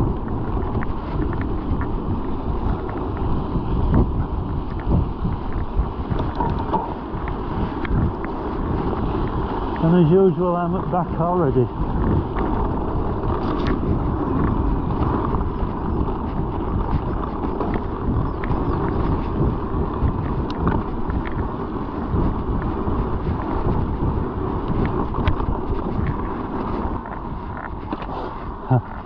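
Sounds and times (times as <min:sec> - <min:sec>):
bike rolling on rough trail: 0:00.0 - 0:29.0
wind buffeting camera case: 0:00.0 - 0:29.0
sharp clicks and rattles: 0:04.7 - 0:08.4.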